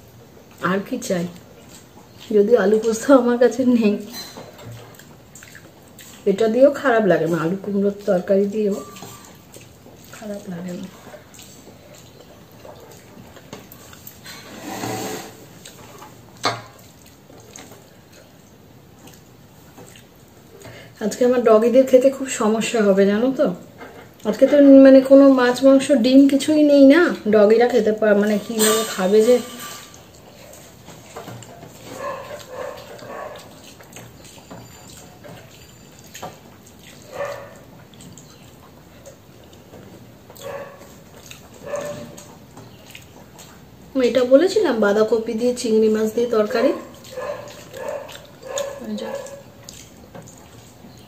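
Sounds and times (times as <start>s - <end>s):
fingers squishing wet food: 4.0s - 14.2s, 15.5s - 20.8s, 30.0s - 44.8s, 45.5s - 51.0s.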